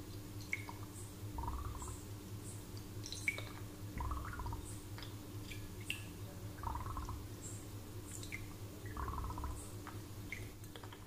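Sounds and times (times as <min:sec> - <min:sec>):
steady low hum: 0:00.0 - 0:11.0
water dripping into glass: 0:03.0 - 0:06.1.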